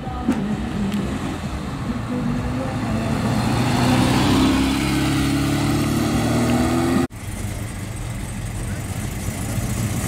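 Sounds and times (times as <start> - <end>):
car engine passing by: 0.2 - 7.6.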